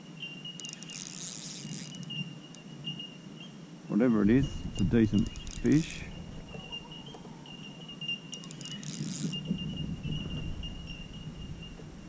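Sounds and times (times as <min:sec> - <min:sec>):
fishing reel winding: 0:00.6 - 0:02.6, 0:04.7 - 0:06.1, 0:08.3 - 0:09.5
metallic reel clicks: 0:00.6 - 0:02.6, 0:04.7 - 0:06.1, 0:08.3 - 0:09.5.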